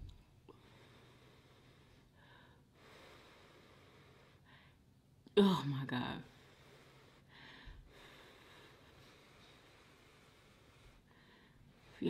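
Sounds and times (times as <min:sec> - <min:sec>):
faint nose breaths: 0:06.3 - 0:12.0.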